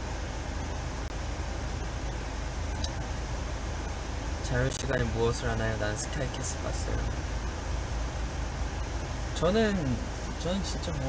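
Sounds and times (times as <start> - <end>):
car cabin rumble and hiss: 0.0 - 11.0.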